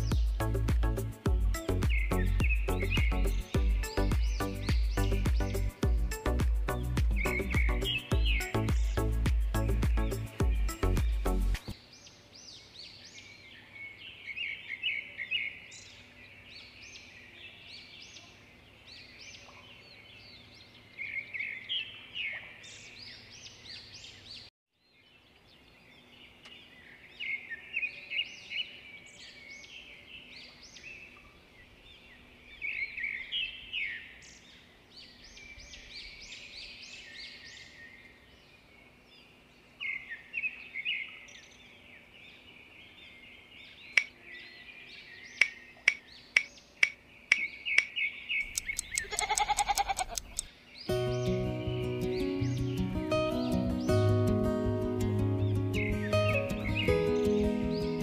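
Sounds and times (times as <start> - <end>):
songbirds chirping: 0.0 - 58.0.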